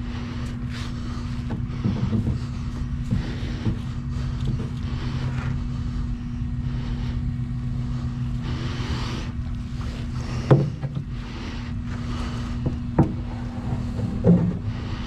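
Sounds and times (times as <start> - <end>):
low hum: 0.0 - 15.0
paddle knocking boat side: 12.6 - 13.3.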